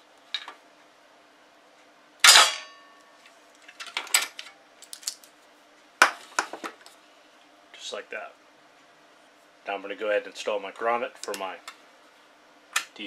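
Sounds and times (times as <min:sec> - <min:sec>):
metal clank with ring: 0:02.3 - 0:03.0.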